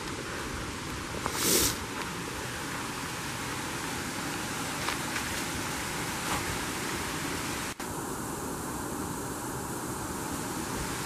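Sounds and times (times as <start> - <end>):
brook water rushing: 0.0 - 11.0.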